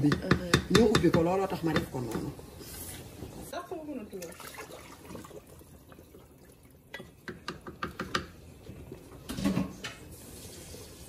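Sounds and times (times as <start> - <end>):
broth sloshing: 4.1 - 7.0.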